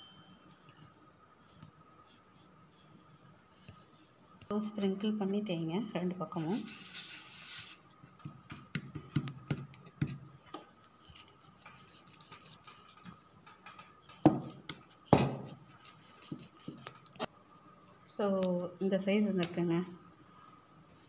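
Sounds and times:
rolling pin rubbing dough: 0.4s - 5.4s, 10.8s - 17.0s
rolling pin thumps: 14.1s - 15.6s.

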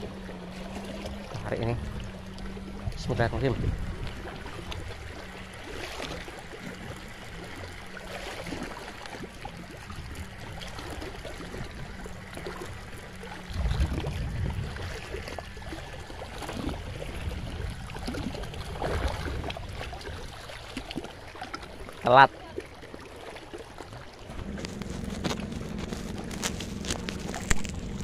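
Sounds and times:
water lapping against rocks: 0.0s - 28.0s
low rumbling bumps: 13.4s - 20.6s, 24.2s - 28.0s.

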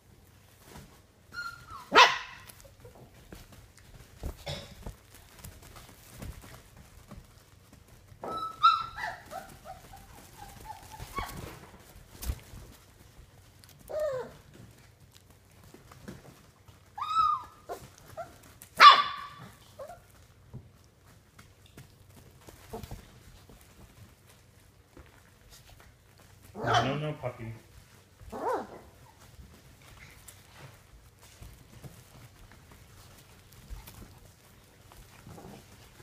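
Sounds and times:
light scuffles and taps: 0.2s - 26.6s, 27.5s - 36.0s
puppy whining: 0.6s - 6.4s, 7.4s - 15.8s, 16.4s - 20.6s, 22.4s - 24.4s, 28.2s - 36.0s
puppies barking and yipping: 1.3s - 3.0s, 8.2s - 12.0s, 16.8s - 20.3s, 28.3s - 30.6s.

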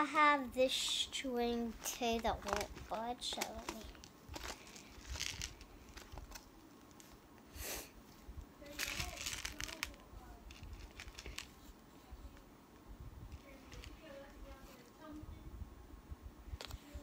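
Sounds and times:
plastic jar crinkling: 0.7s - 7.2s, 8.6s - 11.7s, 13.4s - 14.9s.

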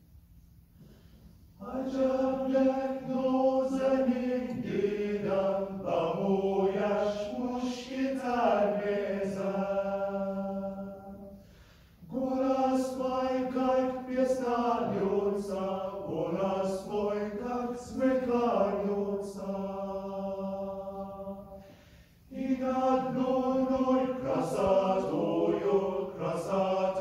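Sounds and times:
mixed choir singing: 1.6s - 11.4s, 12.1s - 21.7s, 22.3s - 27.0s.

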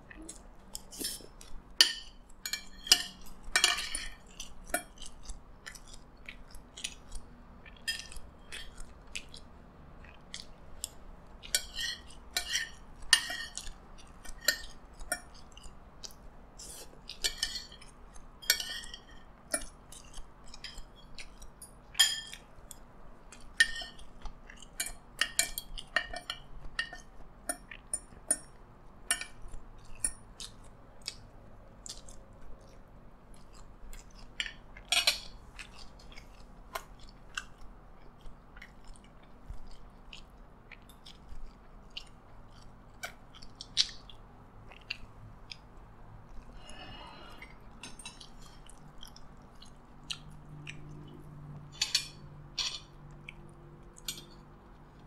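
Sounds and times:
chewing and mouth sounds: 0.0s - 55.0s
cutlery clinking on ceramic plates: 1.8s - 5.0s, 11.5s - 15.3s, 17.2s - 21.1s, 21.7s - 22.5s, 51.7s - 53.0s.

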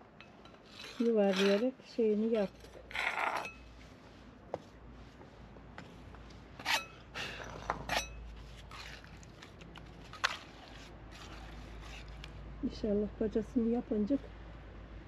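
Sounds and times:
scrapes and knocks: 0.2s - 3.9s.

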